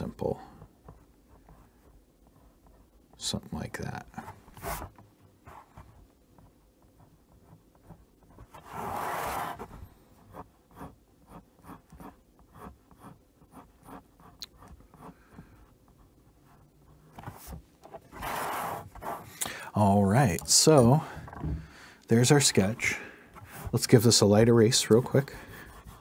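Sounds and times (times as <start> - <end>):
pencil scratching on paper: 0.5 - 3.1, 5.5 - 19.4, 23.4 - 26.0.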